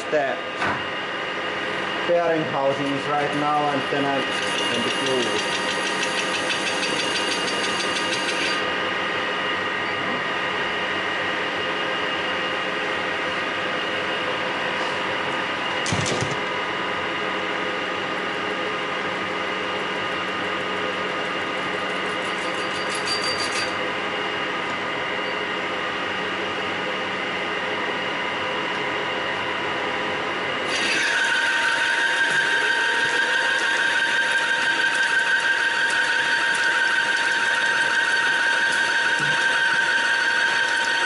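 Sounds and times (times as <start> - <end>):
metal lathe humming: 0.1 - 15.8, 30.6 - 41.0.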